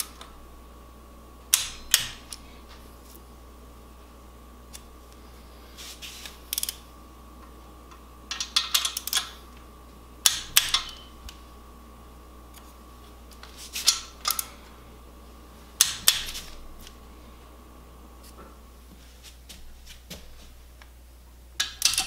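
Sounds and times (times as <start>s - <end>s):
ratchet wrench clicking: 6.5s - 6.8s.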